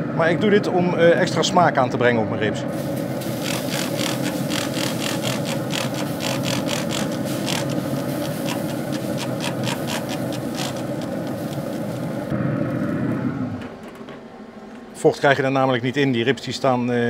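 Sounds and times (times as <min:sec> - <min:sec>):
steady low hum: 0:00.0 - 0:17.0
spray bottle click and hiss: 0:02.9 - 0:12.3.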